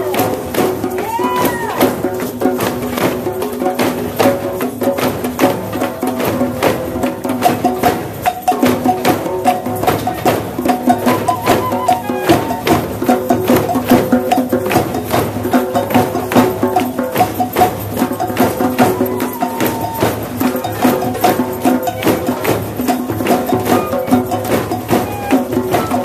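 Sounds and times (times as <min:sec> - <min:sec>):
drum circle playing frame drums: 0:00.0 - 0:26.0
held melody: 0:10.9 - 0:12.9.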